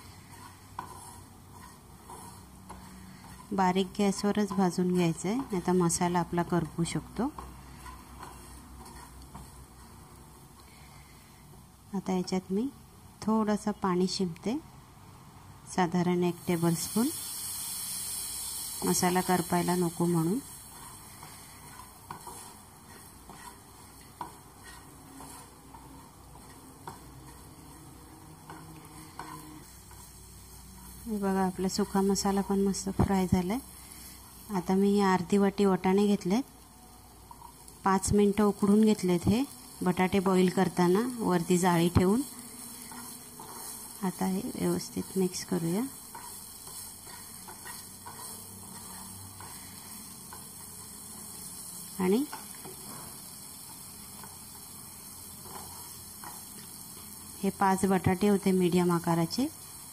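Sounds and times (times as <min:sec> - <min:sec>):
spatula scraping frying pan: 0:00.0 - 0:11.5, 0:16.5 - 0:34.6, 0:39.5 - 0:57.3
faint sizzle: 0:00.0 - 0:59.9
spatula tapping and scraping pan: 0:00.1 - 0:05.6, 0:06.6 - 0:10.7, 0:20.6 - 0:30.9.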